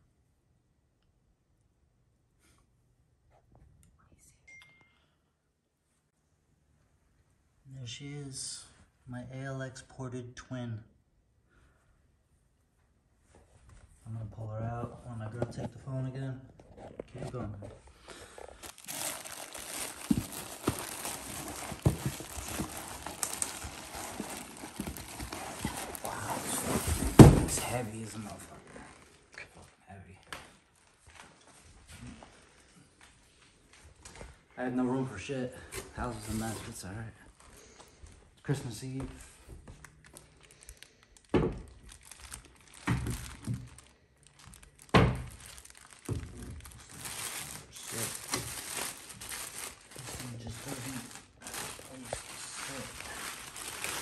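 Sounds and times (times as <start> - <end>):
plastic and bubble wrap crinkling: 16.5 - 34.2, 35.6 - 38.2, 38.8 - 54.0.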